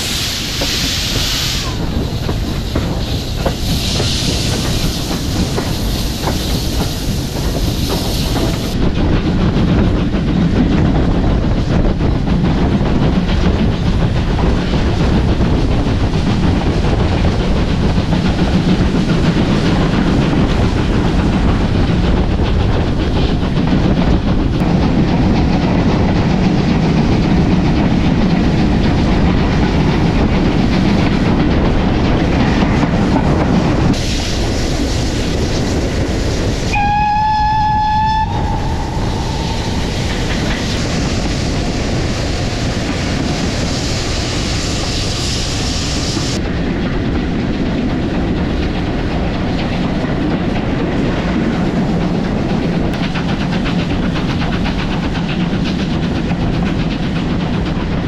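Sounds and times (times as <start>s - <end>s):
train wheels clattering on rails: 0.0s - 58.0s
steam whistle: 36.7s - 39.0s.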